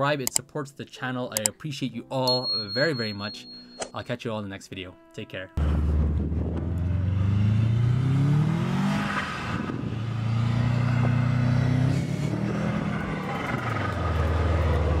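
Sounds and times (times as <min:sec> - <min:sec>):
car engine revving: 0:05.6 - 0:15.0.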